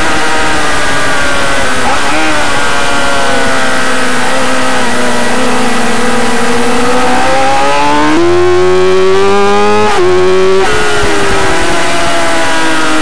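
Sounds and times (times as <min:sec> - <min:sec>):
racing motorcycle engine revving: 0:00.0 - 0:13.0
wind rush: 0:10.4 - 0:12.7.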